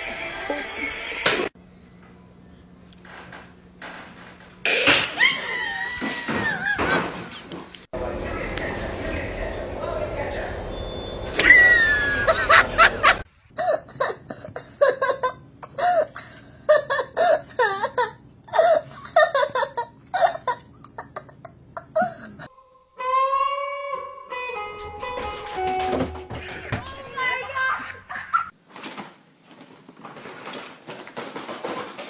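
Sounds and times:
electric guitar plucked notes: 22.9 - 27.1.

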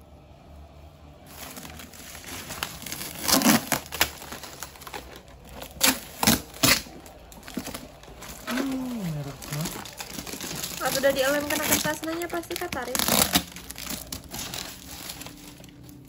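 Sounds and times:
bubble wrap crinkling: 1.2 - 16.0.

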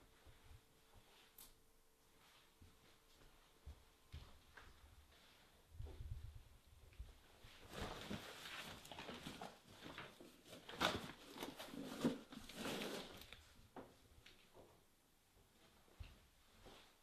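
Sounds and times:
clothing rustling: 2.1 - 13.6.

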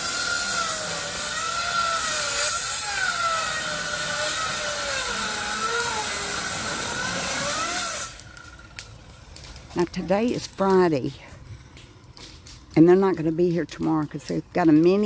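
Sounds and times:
motor whine: 0.0 - 8.8.

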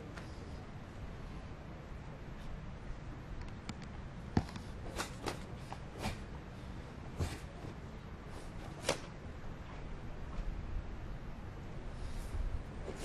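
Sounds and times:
low background noise: 0.0 - 13.0
cloth snapping sharply: 8.8 - 9.2.

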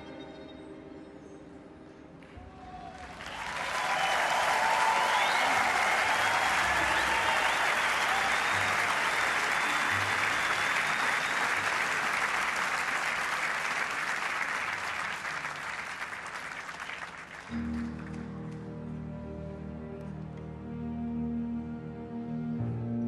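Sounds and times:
audience applauding: 2.4 - 18.5
soft music with low held notes: 17.5 - 23.0.

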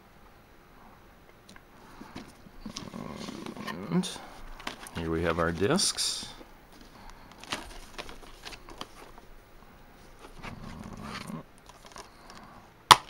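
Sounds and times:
plastic cases sliding scrape: 1.8 - 9.3, 10.0 - 12.5
plastic cases clicking and tapping: 11.6 - 13.0.

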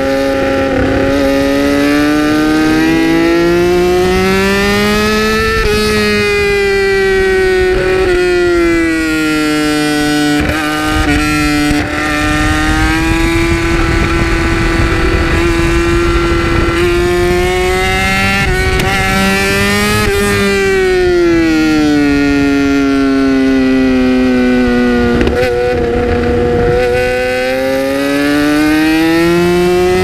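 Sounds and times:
motorcycle engine high note: 0.0 - 30.0.

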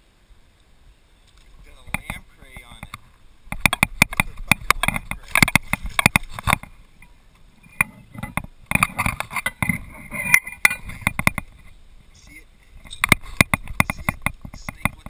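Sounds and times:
paddle knocks and clicks: 1.8 - 6.8, 7.7 - 11.7, 12.8 - 15.0.

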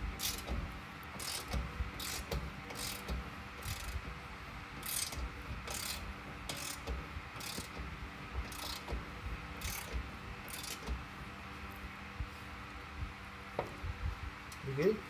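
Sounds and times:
ratchet wrench clicking: 0.2 - 0.6, 1.2 - 4.1, 4.8 - 9.0, 9.6 - 11.0.

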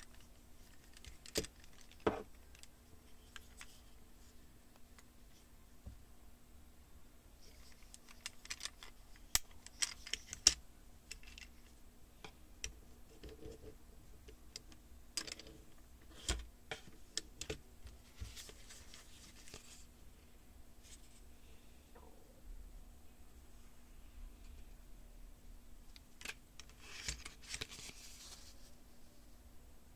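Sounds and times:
paper rustling: 26.6 - 28.8.

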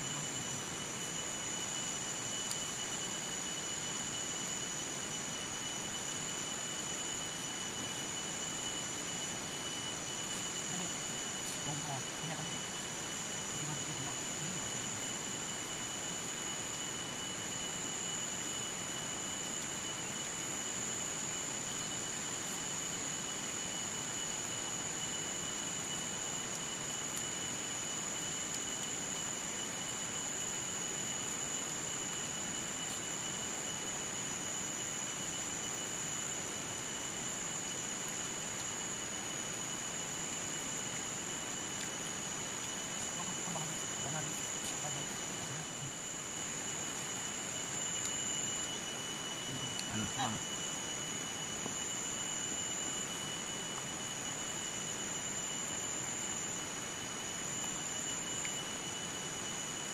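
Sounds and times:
insects droning: 0.0 - 59.9.

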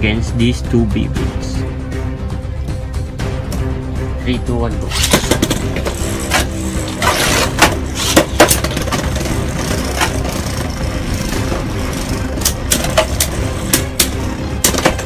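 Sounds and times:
spinning tops clacking together: 4.9 - 11.3
spinning tops whirring: 4.9 - 15.0.

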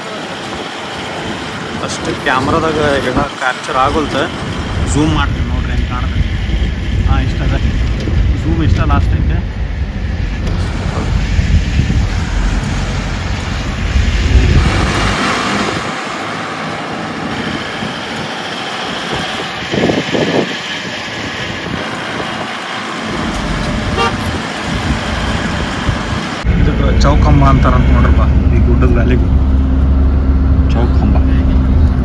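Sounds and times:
road noise: 0.0 - 32.0
van engine: 0.0 - 32.0
vehicle horn tooting: 23.9 - 24.4.

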